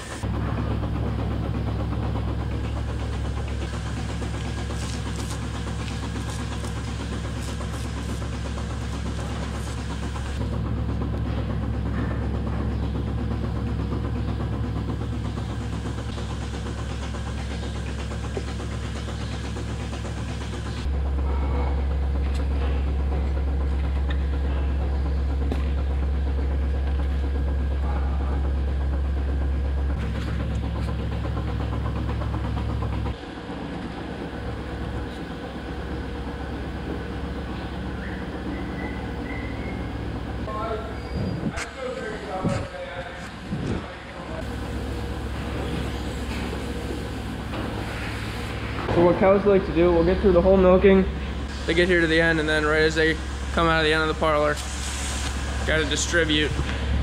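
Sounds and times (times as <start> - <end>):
milking machinery humming: 0.0 - 57.0.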